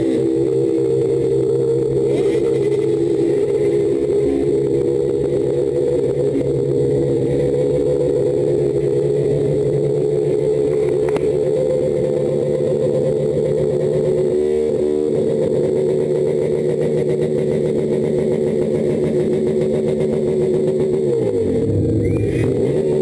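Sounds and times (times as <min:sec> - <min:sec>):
motorcycle engine running: 0:00.0 - 0:23.0
brief wavering tone: 0:21.2 - 0:22.8.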